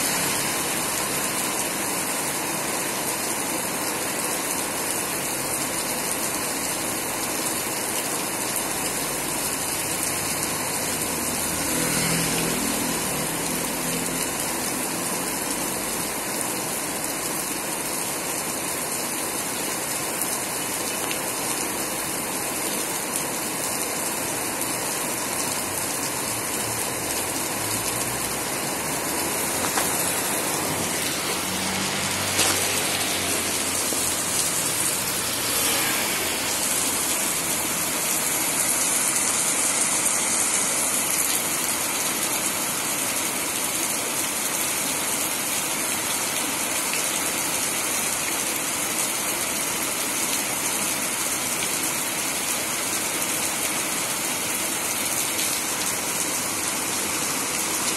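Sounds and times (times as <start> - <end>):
heavy rain on street: 0.0 - 57.9
vehicle passing: 11.3 - 14.4, 26.8 - 38.1.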